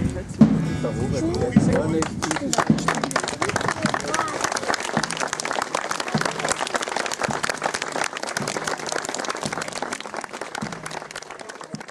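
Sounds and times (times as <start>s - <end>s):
crowd applauding: 1.4s - 11.9s.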